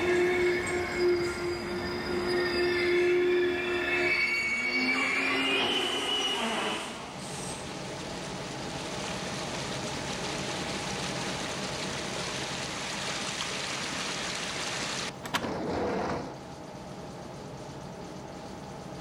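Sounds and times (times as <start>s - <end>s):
subway train rumbling: 0.0s - 12.6s.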